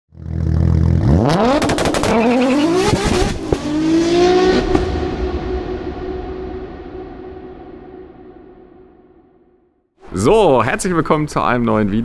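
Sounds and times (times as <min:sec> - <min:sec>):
exhaust cracks: 0:00.1 - 0:06.8
car engine revving: 0:00.1 - 0:08.3.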